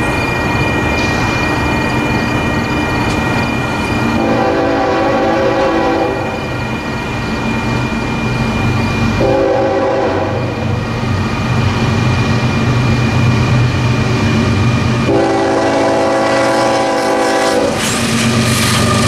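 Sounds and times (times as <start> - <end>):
locomotive air horn blasts: 4.2 - 6.3, 9.2 - 10.6, 15.1 - 17.8.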